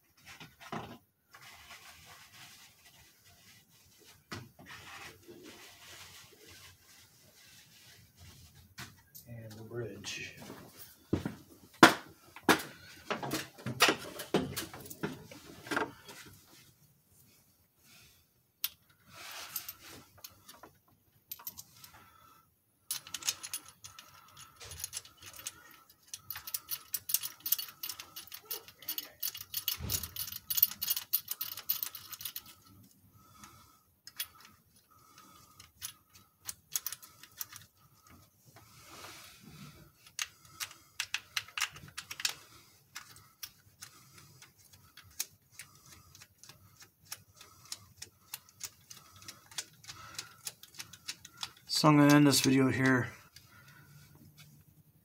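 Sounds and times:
metal parts clinking: 22.9s - 32.7s, 34.0s - 38.1s.

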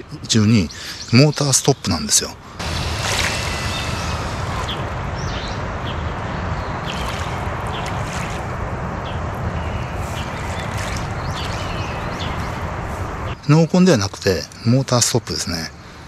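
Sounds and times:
wind: 0.0s - 16.0s
water lapping: 2.6s - 5.0s, 6.8s - 9.2s, 9.8s - 13.4s.

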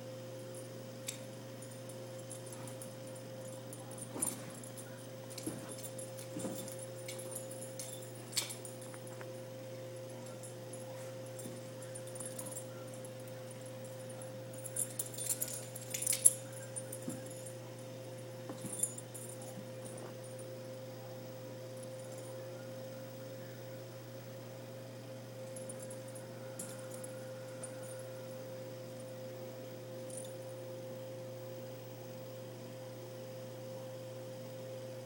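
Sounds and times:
steady hum: 0.0s - 32.4s
dog tag jingling: 14.6s - 17.3s.

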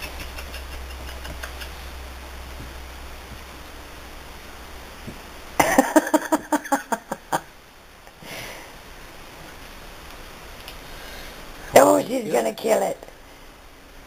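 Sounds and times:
person laughing: 0.0s - 1.8s, 5.6s - 7.5s.

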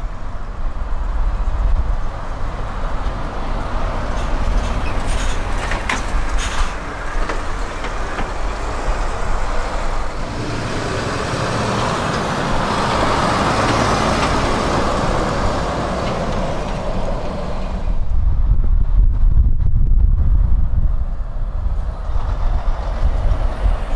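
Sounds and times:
lorries passing: 0.0s - 23.9s
trailer rattles: 0.0s - 23.9s
deep rumble: 17.7s - 23.9s.

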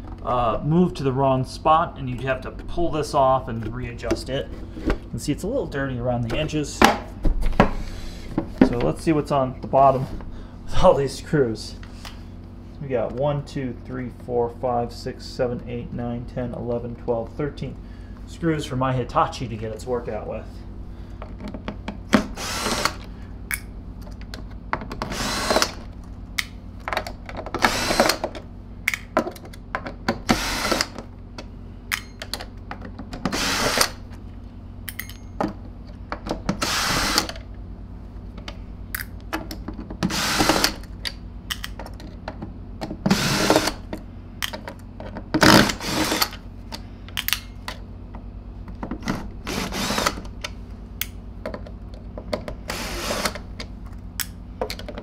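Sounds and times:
drill driver whirring: 22.2s - 23.1s, 25.0s - 25.8s, 27.6s - 28.3s, 30.2s - 31.0s, 33.2s - 34.0s, 36.5s - 37.4s, 40.0s - 40.8s, 43.0s - 43.9s, 45.4s - 46.4s, 49.4s - 50.3s, 52.6s - 53.5s.

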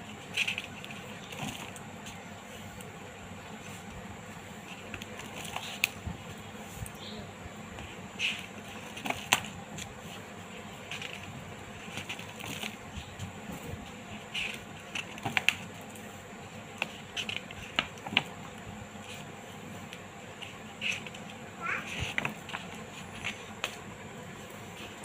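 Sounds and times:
paper pages rustling: 0.1s - 2.8s, 4.6s - 6.1s, 7.8s - 23.8s.

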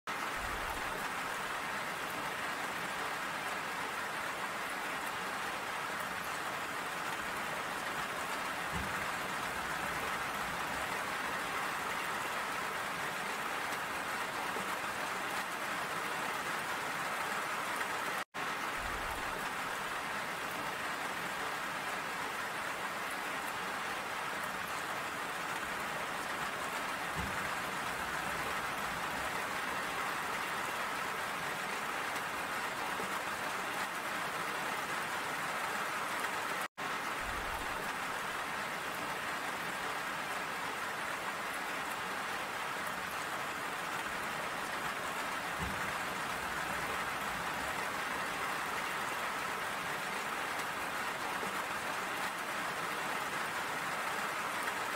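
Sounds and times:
rain pattering: 0.1s - 54.9s.

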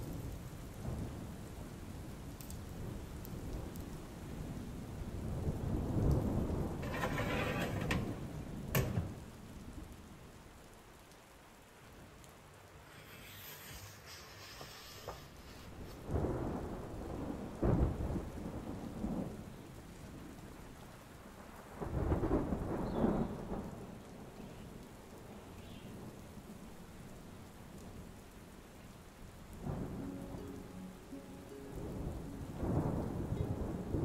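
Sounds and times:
steady rain: 0.0s - 34.0s
thunder rolling: 5.2s - 10.0s, 14.5s - 19.4s, 31.7s - 34.0s.

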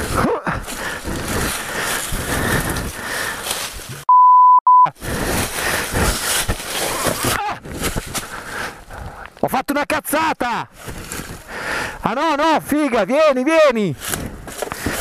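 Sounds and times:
rustling and scuffing: 0.0s - 4.1s, 5.1s - 8.6s
censor bleep tone: 4.1s - 5.0s.

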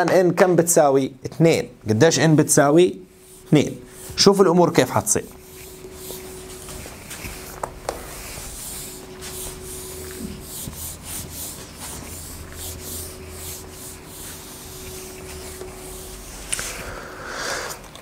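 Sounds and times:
eraser rubbing whiteboard: 3.2s - 16.8s.

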